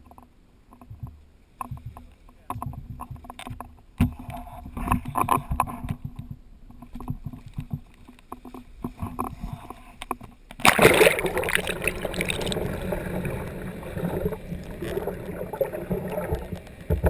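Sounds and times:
underwater rushing and gurgling: 0:10.5 - 0:17.0
loud splash into water: 0:10.6 - 0:14.4.

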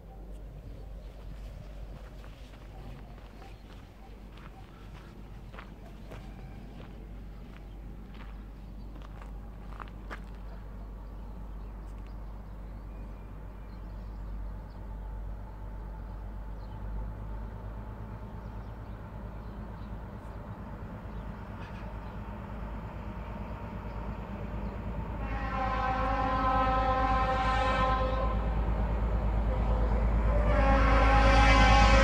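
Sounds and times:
freight train rumble: 0:00.0 - 0:32.0
train horn held: 0:25.2 - 0:28.6, 0:29.5 - 0:32.0.

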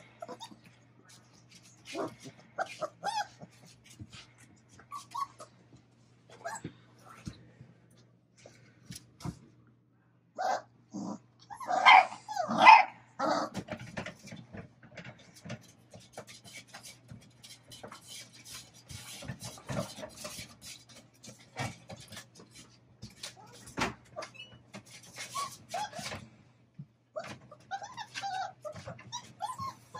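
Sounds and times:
puppies scratching at wooden box: 0:00.0 - 0:05.5, 0:13.5 - 0:26.3, 0:27.2 - 0:29.9
puppies yapping: 0:01.9 - 0:04.0, 0:04.8 - 0:05.6, 0:11.4 - 0:13.6, 0:27.2 - 0:29.9.

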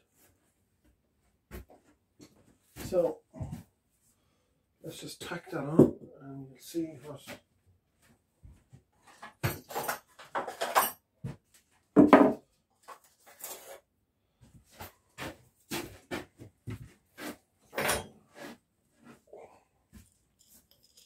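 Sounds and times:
tools clattering on a bench: 0:09.0 - 0:11.4, 0:12.0 - 0:13.8, 0:17.7 - 0:18.2, 0:20.0 - 0:21.0.

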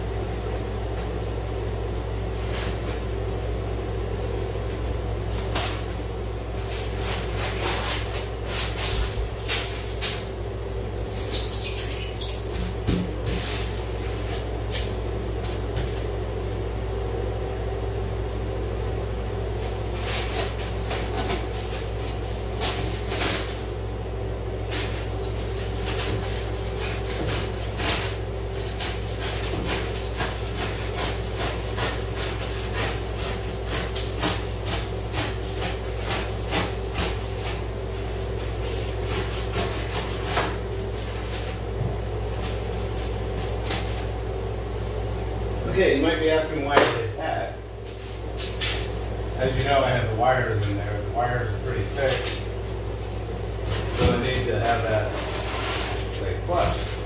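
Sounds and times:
steady low hum: 0:00.0 - 0:57.0
foam board scratching and scuffing: 0:06.6 - 0:10.2, 0:11.2 - 0:16.1, 0:53.0 - 0:57.0.

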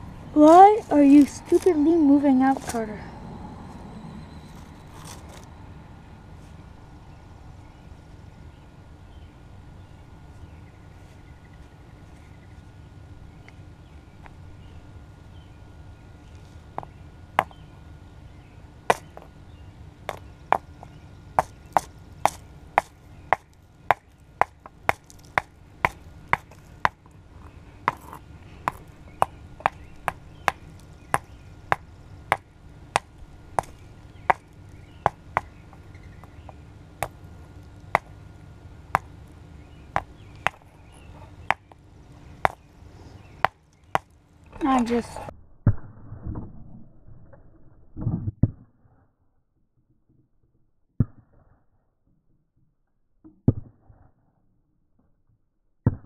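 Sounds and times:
sharp irregular taps: 0:27.9 - 0:37.2.

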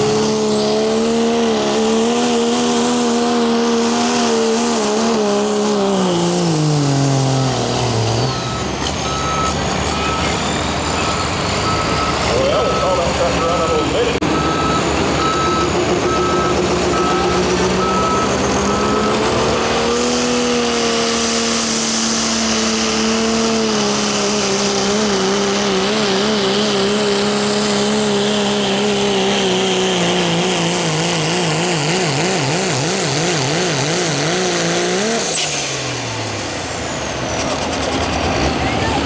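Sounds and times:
diesel engine at full throttle: 0:00.0 - 0:39.0
repeated beeping: 0:07.3 - 0:19.6.

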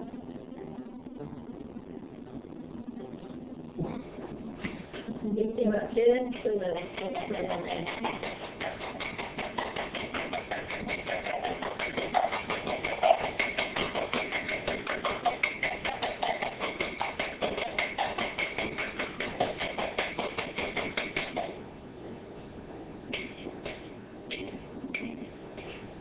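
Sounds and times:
utensil tapping mixing bowl: 0:06.8 - 0:21.5.

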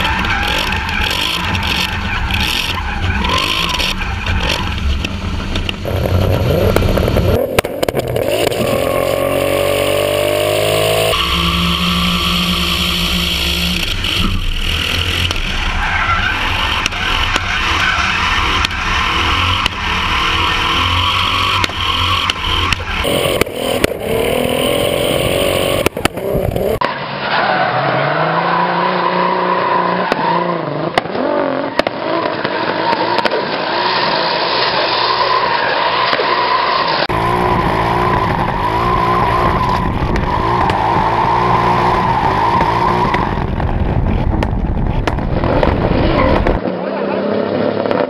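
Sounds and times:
car engine revving: 0:00.0 - 0:35.2, 0:37.0 - 0:48.0.

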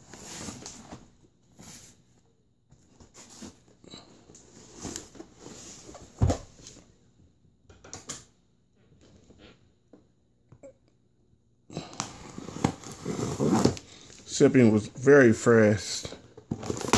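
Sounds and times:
cardboard box rustling: 0:12.2 - 0:13.8, 0:16.5 - 0:16.9.

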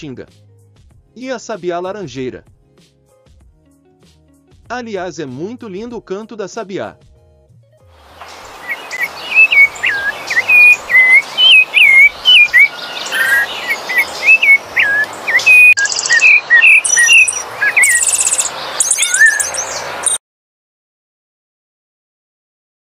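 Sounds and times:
thrush singing whistled phrases: 0:08.6 - 0:20.2.

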